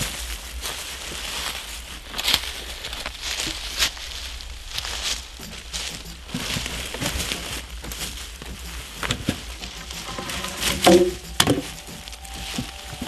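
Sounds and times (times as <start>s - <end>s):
leaves and twigs crunching underfoot: 0.0s - 13.0s
wood striking wood: 9.6s - 12.1s.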